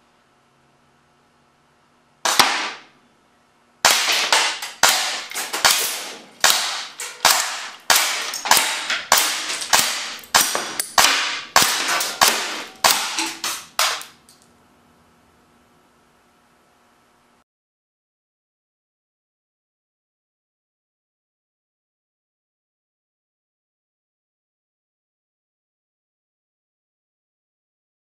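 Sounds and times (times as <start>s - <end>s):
air cannon shots cracking: 2.2s - 2.9s, 3.8s - 14.1s.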